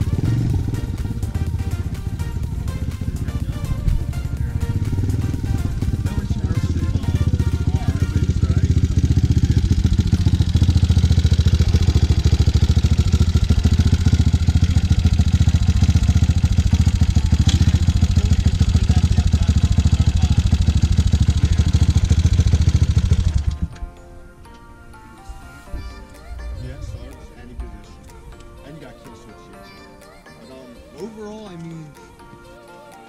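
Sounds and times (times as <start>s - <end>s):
dirt bike engine idling: 0.0s - 23.9s.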